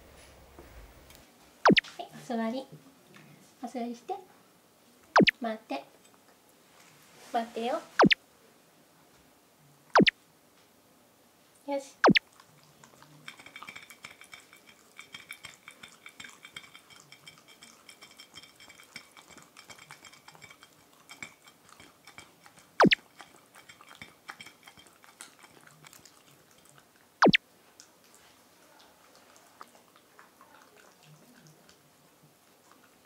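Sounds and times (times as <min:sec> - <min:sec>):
dog chewing: 0:12.0 - 0:33.0
dog licking plate: 0:12.2 - 0:27.1, 0:27.8 - 0:33.0.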